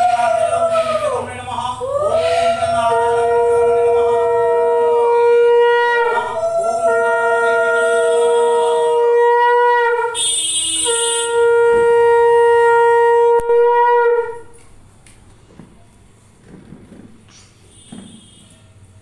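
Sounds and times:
conch shell blasts: 2.1s - 14.6s, 17.6s - 18.7s.

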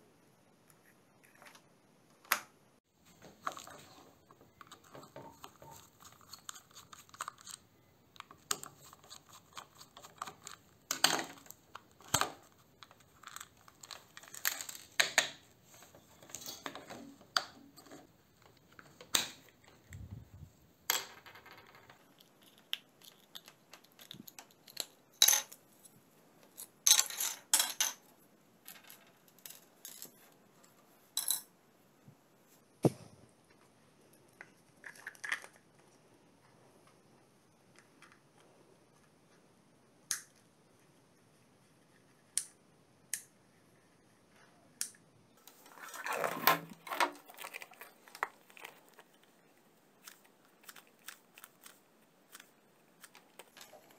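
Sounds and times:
plastic parts clicking and tapping: 1.2s - 20.3s.

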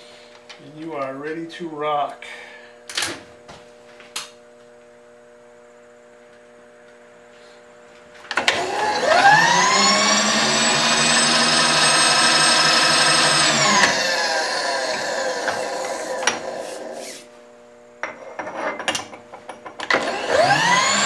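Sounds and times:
electric motor whining: 8.4s - 17.3s, 19.9s - 21.0s.

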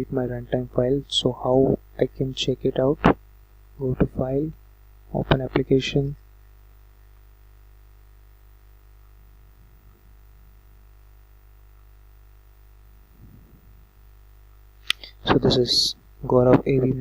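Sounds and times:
faint electrical hum and hiss: 0.0s - 17.0s.

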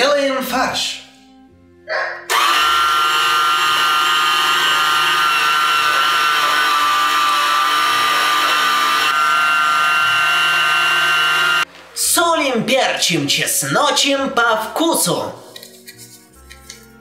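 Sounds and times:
electric meat grinder whine: 2.3s - 11.7s.

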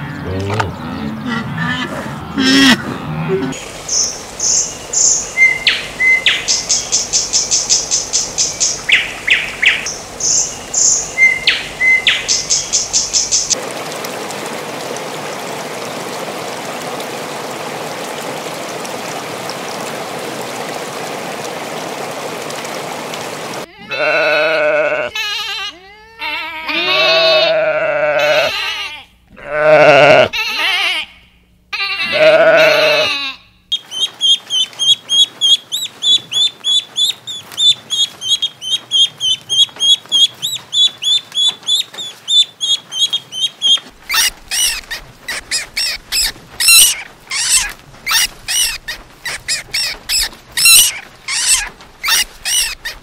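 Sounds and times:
steady even noise: 0.0s - 5.0s
sheep bleating: 23.7s - 31.1s, 31.8s - 33.4s
ducklings peeping: 33.8s - 53.0s.

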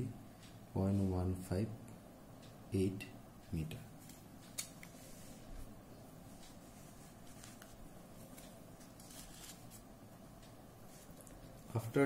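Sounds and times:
low room hum: 0.0s - 12.0s
paper rustling and sliding: 6.6s - 9.8s.

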